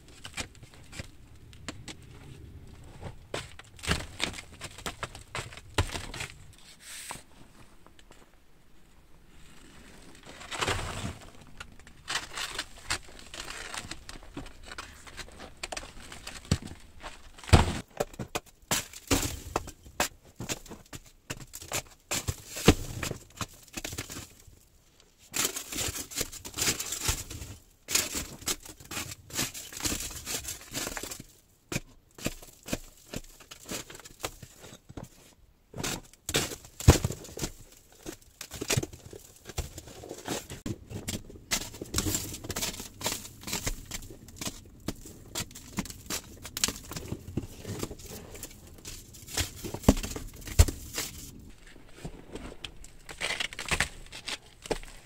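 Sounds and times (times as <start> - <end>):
rock and grit crumbling down: 0.0 - 6.6, 36.2 - 55.0.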